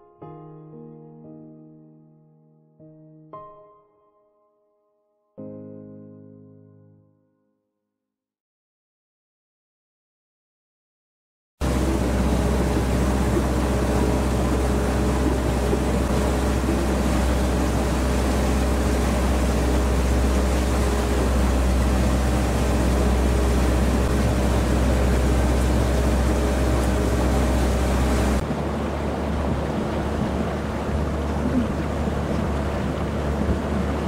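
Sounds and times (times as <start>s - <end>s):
boat engine running: 11.6s - 34.0s
water and hull noise: 11.6s - 34.0s.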